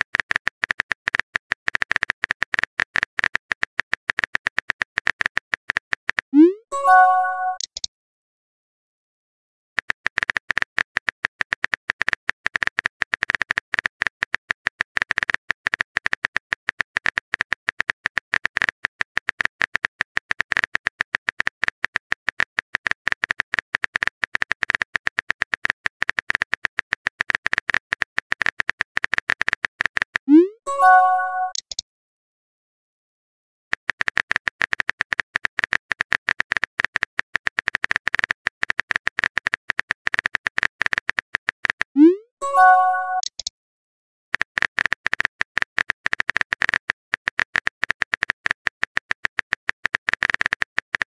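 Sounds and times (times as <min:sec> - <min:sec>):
keyboard typing clicks: 0:00.3 - 0:07.9, 0:27.2 - 0:31.8, 0:37.6 - 0:43.5
message sent pop and chime: 0:06.4 - 0:07.8, 0:30.3 - 0:31.7, 0:42.1 - 0:43.4.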